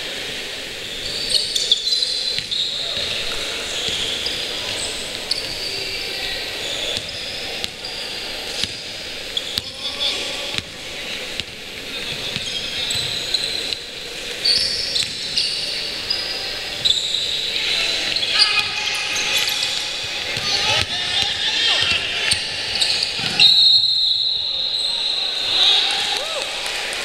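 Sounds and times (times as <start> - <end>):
players' voices: 0.0 - 27.0
sneakers squeaking on court: 0.8 - 25.3
basketball bouncing: 2.4 - 5.6, 6.9 - 7.8, 8.5 - 9.8, 10.5 - 13.9, 15.0 - 15.5, 19.4 - 23.4.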